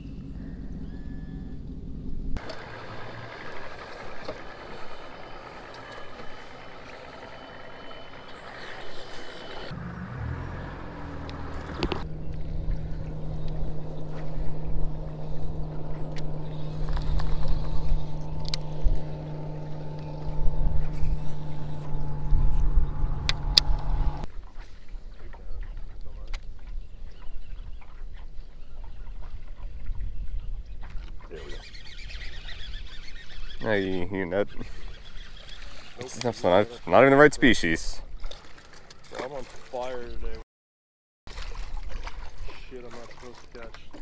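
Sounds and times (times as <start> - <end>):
boat motor running: 2.4 - 24.3.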